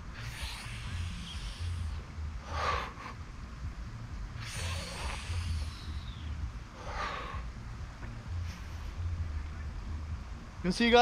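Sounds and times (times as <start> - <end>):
man breathing out hard: 0.1 - 3.3, 4.4 - 7.5.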